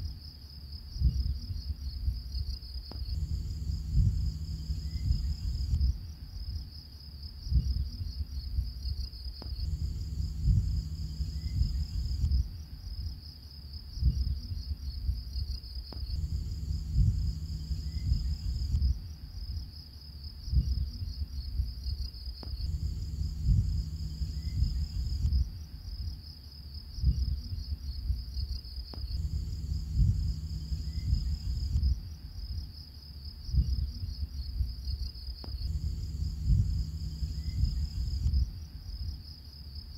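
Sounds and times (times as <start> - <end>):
cricket-like chirring: 0.0 - 39.9
soft low pulses: 1.0 - 6.7, 7.4 - 13.2, 14.0 - 19.6, 22.4 - 26.0, 27.0 - 32.7, 33.5 - 39.2
higher synth layer: 3.1 - 5.8, 9.6 - 12.3, 16.2 - 18.8, 22.7 - 25.3, 29.2 - 31.8, 35.7 - 38.3.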